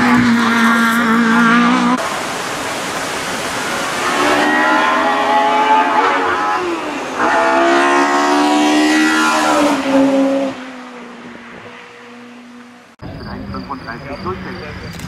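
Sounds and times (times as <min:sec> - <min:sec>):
race car engine revving past: 0:00.0 - 0:02.2, 0:03.6 - 0:13.0.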